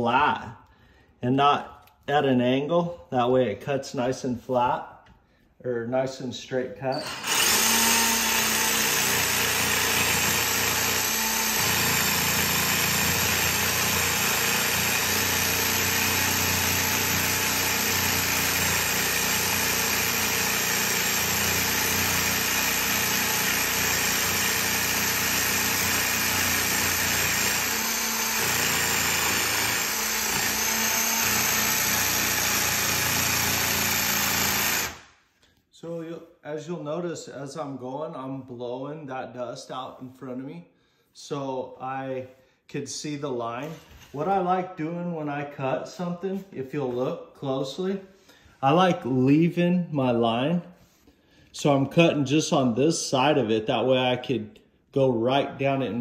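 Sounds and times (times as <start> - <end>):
jigsaw cutting countertop: 7.0 - 35.0.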